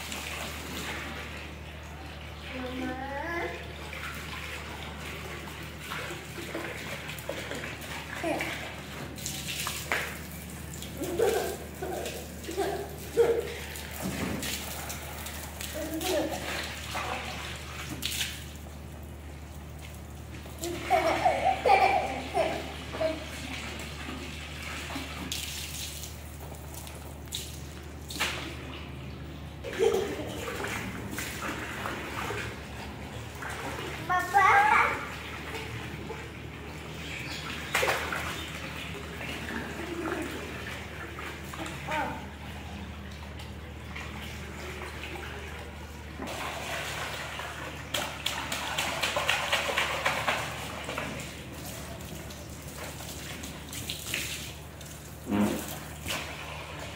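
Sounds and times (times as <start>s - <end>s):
hose water pouring into pool: 0.0s - 1.6s, 3.3s - 28.6s, 43.6s - 56.9s
water splashing: 0.0s - 56.9s
small child laughing: 11.0s - 13.8s, 20.6s - 23.2s, 29.6s - 30.5s, 39.8s - 40.5s.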